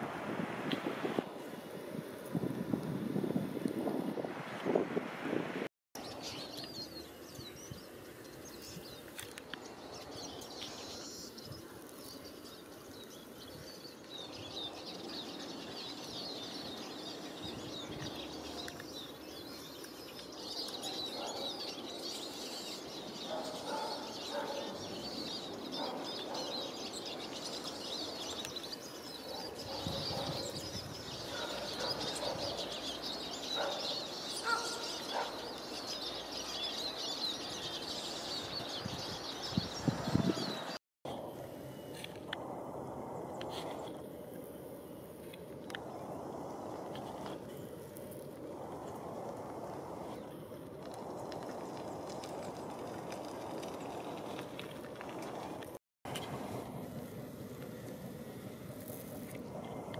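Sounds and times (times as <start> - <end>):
small birds chirping: 6.0 - 42.1.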